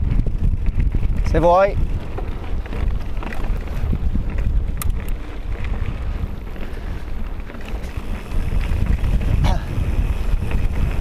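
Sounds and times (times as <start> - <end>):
bike rattling on gravel: 0.0 - 11.0
wind buffeting microphone: 0.0 - 11.0
sharp clicks: 4.8 - 5.2.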